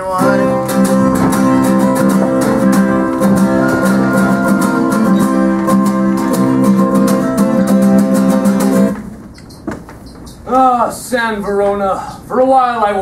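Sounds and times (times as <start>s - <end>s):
acoustic guitars strumming: 0.0s - 9.2s.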